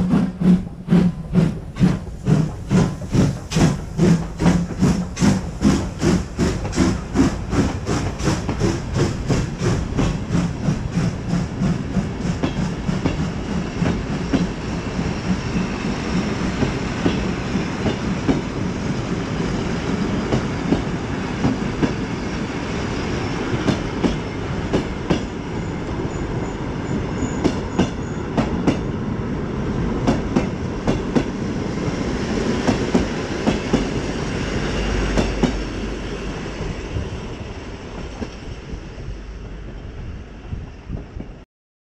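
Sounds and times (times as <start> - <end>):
train wheels clacking over rail joints: 0.0 - 18.7, 23.5 - 25.4, 27.2 - 28.9, 30.0 - 31.4, 32.4 - 34.1, 34.8 - 35.8.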